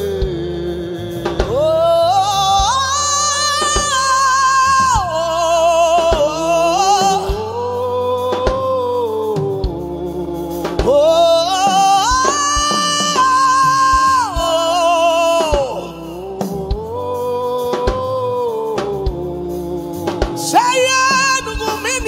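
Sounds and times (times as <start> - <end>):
man singing a chant: 0.0 - 22.0.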